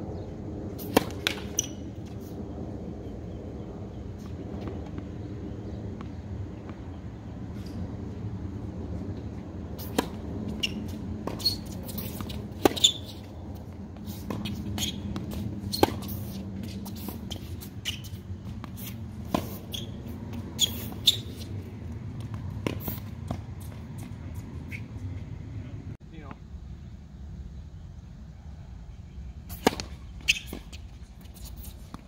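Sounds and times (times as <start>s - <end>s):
tennis ball bounces: 0.8s - 1.8s, 9.8s - 24.8s, 29.5s - 30.8s.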